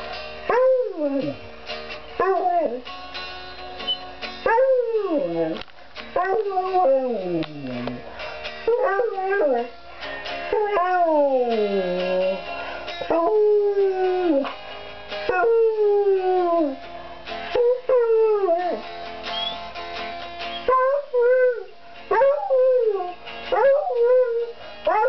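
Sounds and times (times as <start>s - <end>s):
electric guitar chords: 0.0s - 25.0s
dog howling: 4.5s - 5.6s, 6.2s - 8.0s, 8.7s - 9.7s, 10.5s - 12.4s, 13.1s - 14.5s, 20.5s - 25.0s.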